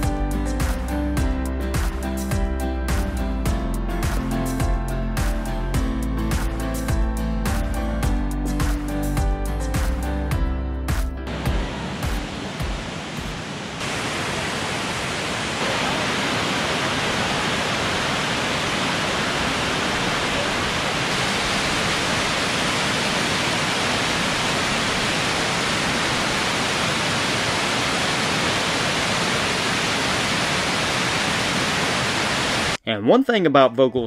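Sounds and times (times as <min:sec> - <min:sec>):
waterfall rushing: 0:11.3 - 0:32.8.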